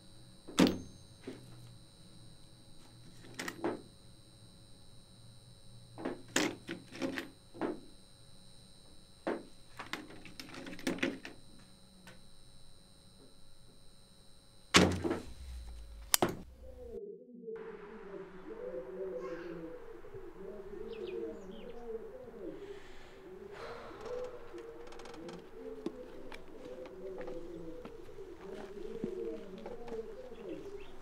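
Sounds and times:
sharp click: 15.7s - 16.4s.

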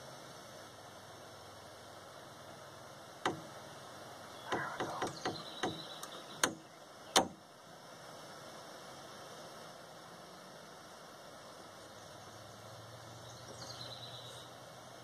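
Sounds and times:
sharp metallic clicks and taps: 3.2s - 3.5s, 4.5s - 7.4s.

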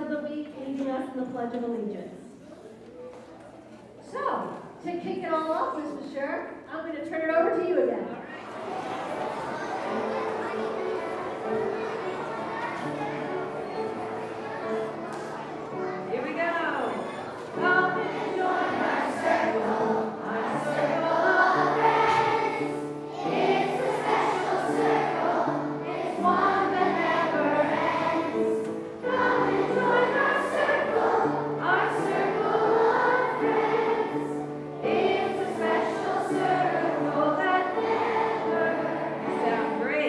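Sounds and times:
group of voices singing: 17.6s - 39.8s.

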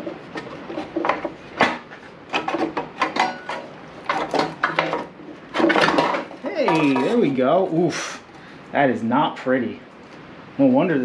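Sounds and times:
sheet metal clattering and scraping: 0.0s - 7.4s.

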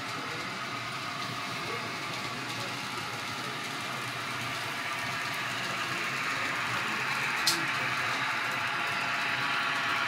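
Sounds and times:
model trains whirring on track: 0.0s - 10.0s.

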